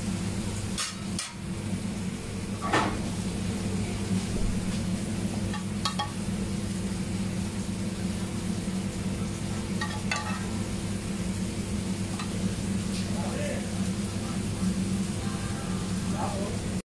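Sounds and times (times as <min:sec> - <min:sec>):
low machine hum: 0:00.0 - 0:16.8
metal spoon clinking on plate: 0:09.8 - 0:10.5.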